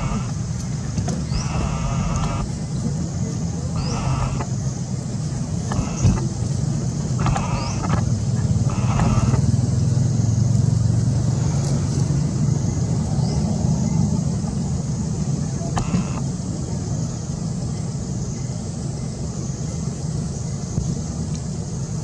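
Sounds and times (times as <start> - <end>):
steady high hiss: 0.0 - 11.3
low engine-like rumble: 0.0 - 22.0.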